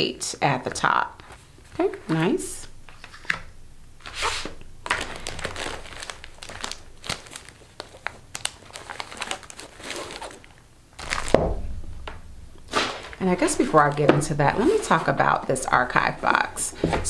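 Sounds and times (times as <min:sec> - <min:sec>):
packaging crinkling and rustling: 0:01.2 - 0:11.6, 0:12.6 - 0:16.2
low thump: 0:11.3 - 0:12.7.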